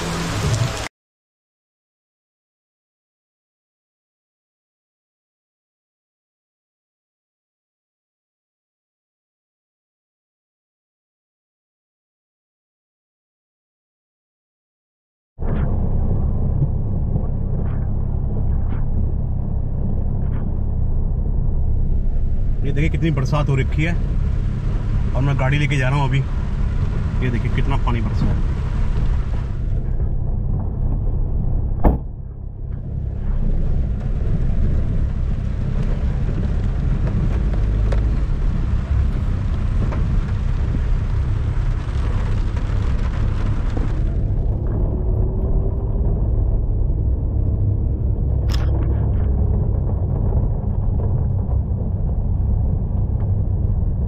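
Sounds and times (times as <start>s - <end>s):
tyres hissing on wet road: 0.0s - 0.9s, 23.6s - 29.6s, 34.9s - 44.1s
vehicle rumbling: 0.0s - 0.9s, 15.4s - 54.0s.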